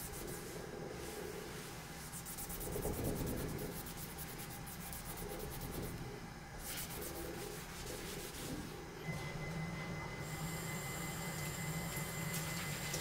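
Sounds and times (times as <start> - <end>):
cloth rubbing on wood: 6.6 - 8.7.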